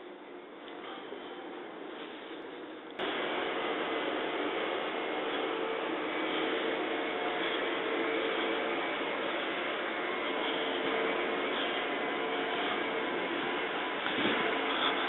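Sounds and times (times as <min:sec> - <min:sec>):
faint constant hum: 0:00.0 - 0:15.0
train rushing noise: 0:03.0 - 0:15.0.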